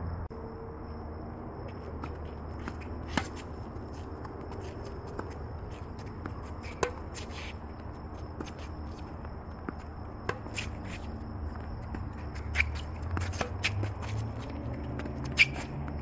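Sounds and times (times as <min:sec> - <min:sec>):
shoes scuffing on court: 0:01.6 - 0:16.0
tennis ball bouncing: 0:01.9 - 0:16.0
racket striking tennis ball: 0:02.0 - 0:08.8, 0:09.6 - 0:11.1, 0:11.9 - 0:16.0.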